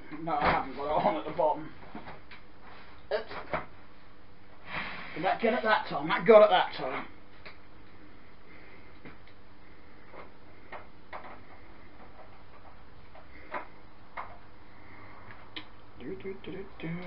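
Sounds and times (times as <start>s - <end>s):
faint steady hum: 0.0s - 17.0s.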